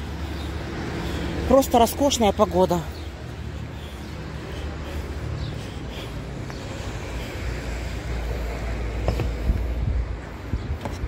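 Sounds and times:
wind buffeting microphone: 0:06.3 - 0:11.0.

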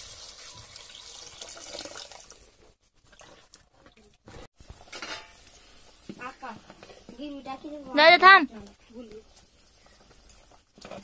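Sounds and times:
water pouring into curry: 0:00.0 - 0:04.1.

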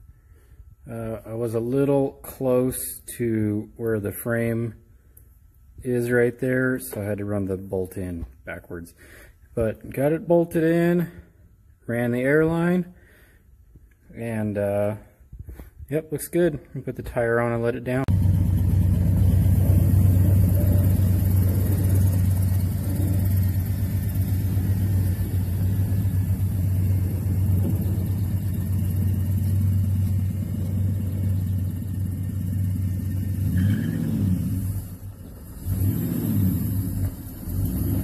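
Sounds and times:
engine low rumble: 0:00.0 - 0:38.0.

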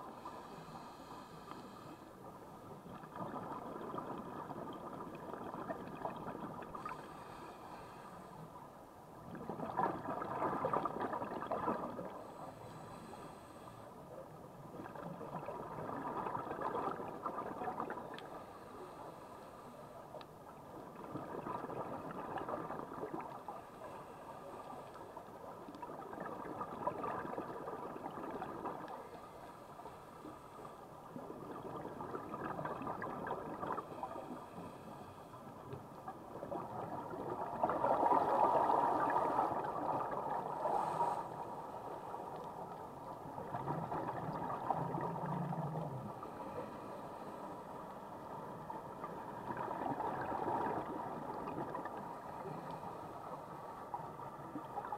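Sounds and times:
bubbles gurgling underwater: 0:02.9 - 0:07.0, 0:09.3 - 0:12.1, 0:14.7 - 0:18.2, 0:20.8 - 0:23.4, 0:25.8 - 0:29.0, 0:31.2 - 0:34.1, 0:36.2 - 0:40.6, 0:43.2 - 0:46.2, 0:48.9 - 0:52.4.

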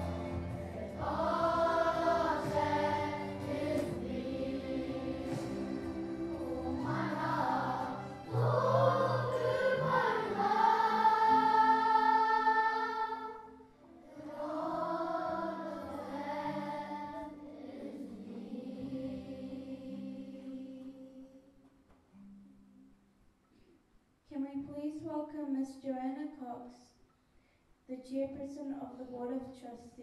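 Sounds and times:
low steady accompaniment: 0:00.0 - 0:21.4
choir singing held notes: 0:00.0 - 0:21.5.

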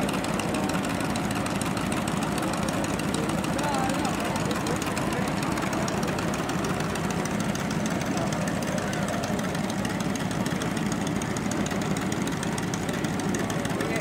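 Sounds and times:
small gasoline engine idling: 0:00.0 - 0:14.0.

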